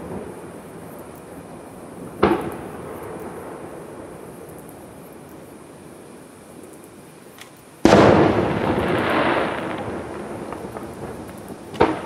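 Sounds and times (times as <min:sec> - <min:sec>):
firework shell bursting: 0:07.4 - 0:12.0.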